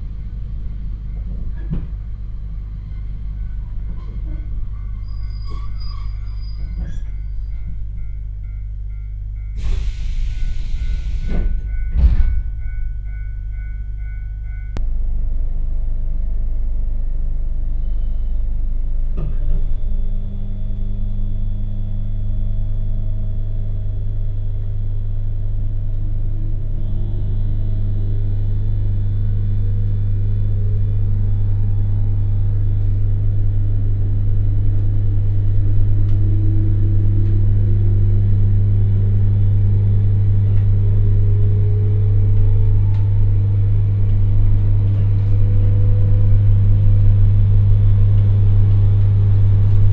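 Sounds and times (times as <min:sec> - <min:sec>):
train motor whine: 0:00.0 - 0:14.6, 0:19.1 - 0:49.9
low electrical hum: 0:12.6 - 0:49.9.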